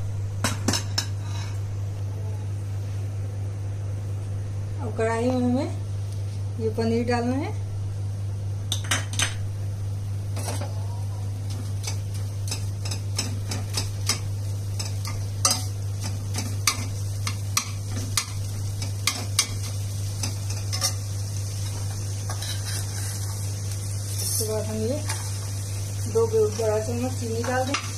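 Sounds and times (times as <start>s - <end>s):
steady low hum: 0.0s - 27.9s
metal spatula scraping a pan: 22.3s - 23.3s.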